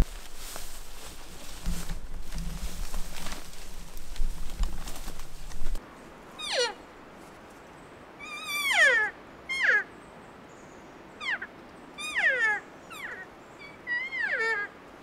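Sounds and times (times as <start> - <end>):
elk calling with high mews: 6.4 - 6.8, 8.2 - 9.9, 11.2 - 14.8.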